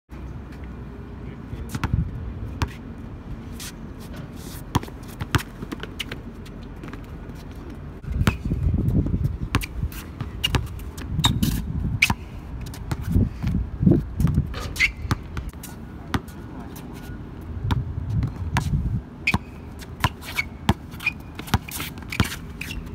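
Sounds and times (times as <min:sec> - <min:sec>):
sneaker scuffs and squeaks: 0:03.5 - 0:13.4, 0:14.2 - 0:17.3, 0:18.2 - 0:22.9
basketball bouncing on court: 0:17.7 - 0:18.7.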